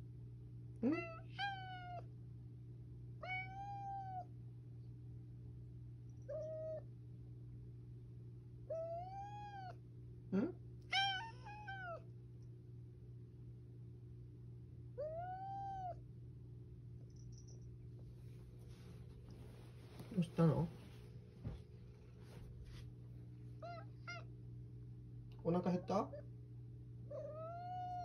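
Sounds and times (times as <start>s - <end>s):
cat low rising chirp: 0.8s - 2.1s, 3.2s - 4.3s, 6.1s - 7.0s, 8.7s - 9.8s, 10.4s - 12.1s, 15.0s - 16.1s, 27.1s - 28.0s.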